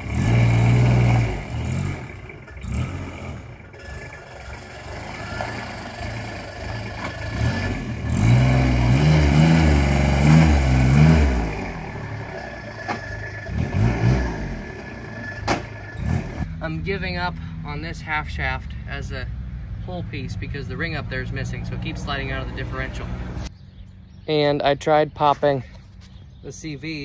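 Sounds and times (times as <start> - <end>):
utility vehicle engine revving: 0.0 - 16.7.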